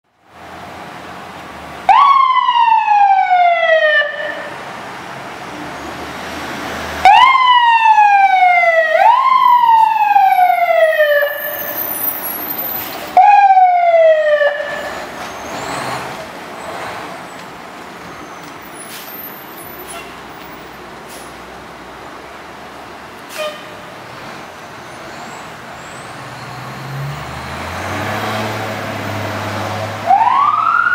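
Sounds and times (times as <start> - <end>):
low steady vehicle noise: 0.1 - 27.3, 29.8 - 30.9
fire engine siren bursts: 1.8 - 4.6, 6.9 - 15.2, 30.0 - 30.9.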